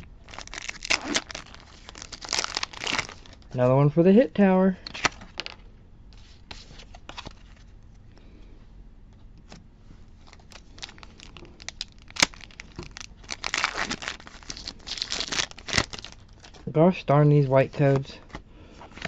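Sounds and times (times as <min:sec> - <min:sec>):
wrapper crinkling as torn open: 0:00.0 - 0:03.5, 0:10.2 - 0:16.7.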